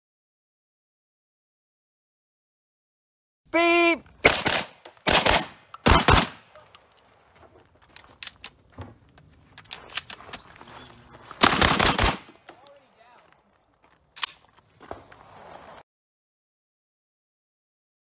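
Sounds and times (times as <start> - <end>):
shotgun blasts: 4.2 - 6.7, 11.4 - 12.5
shells loaded clicking: 4.8 - 7.1, 7.8 - 8.6, 9.3 - 12.8, 14.2 - 14.5.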